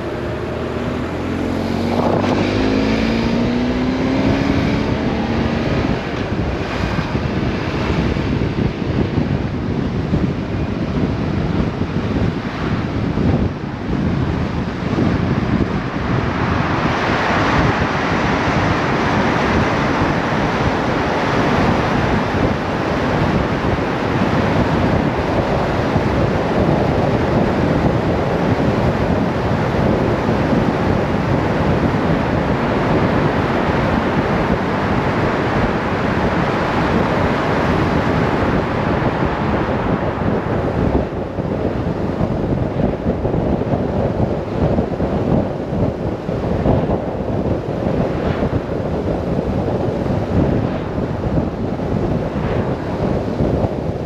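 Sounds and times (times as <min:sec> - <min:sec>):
motorcycle running: 0:00.0 - 0:54.0
wind rushing on microphone: 0:00.0 - 0:54.0.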